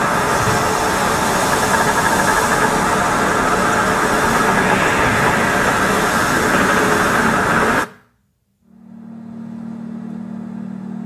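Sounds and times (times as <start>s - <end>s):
bus station ambience: 0.0s - 8.0s
loud storm noise: 0.0s - 8.0s
steady low hum: 0.0s - 11.0s.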